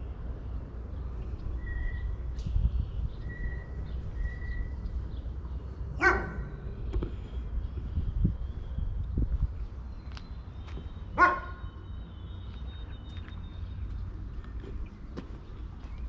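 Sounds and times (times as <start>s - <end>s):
dog barking: 6.0s - 6.4s, 11.2s - 11.6s.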